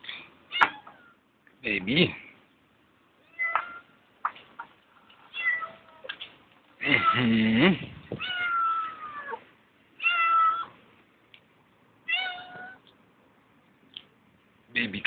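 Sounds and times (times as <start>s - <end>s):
cat meowing: 3.2s - 3.9s, 5.3s - 6.1s, 8.2s - 9.4s, 10.0s - 10.8s, 12.1s - 12.8s.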